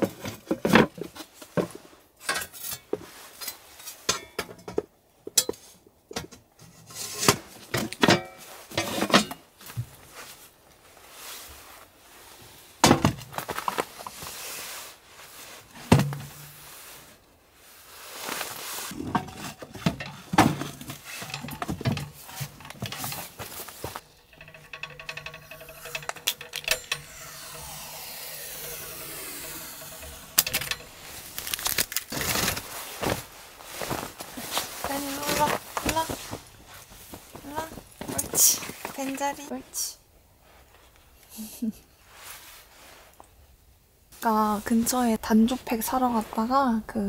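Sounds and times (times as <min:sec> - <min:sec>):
sheet metal panels clanking: 0:20.0 - 0:32.5.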